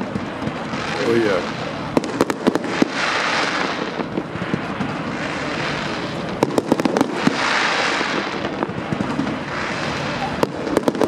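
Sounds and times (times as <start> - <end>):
continuous fireworks hiss: 0.0 - 11.0
fireworks bangs and pops: 0.0 - 11.0.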